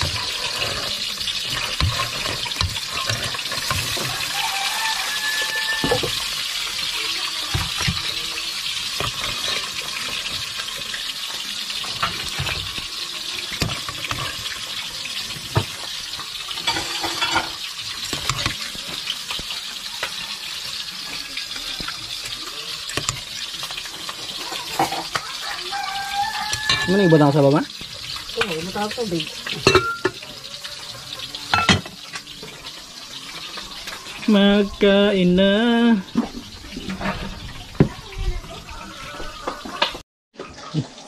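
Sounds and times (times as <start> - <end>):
ladle clinking against pot: 29.6 - 30.2.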